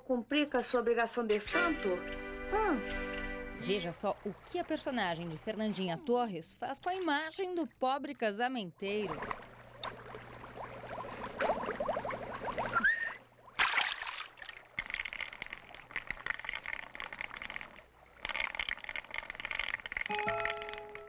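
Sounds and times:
stream water gurgling: 0:08.9 - 0:19.8
object splashing into water: 0:09.1 - 0:20.8.

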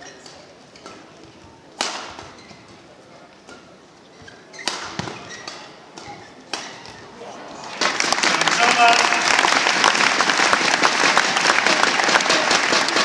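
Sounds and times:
racket hitting shuttlecock: 0:00.2 - 0:02.7, 0:04.5 - 0:07.1.

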